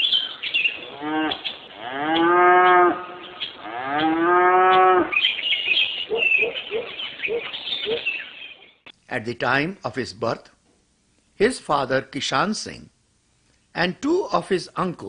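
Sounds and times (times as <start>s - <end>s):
birds chirping: 0.0s - 8.9s
cow mooing: 0.9s - 5.1s.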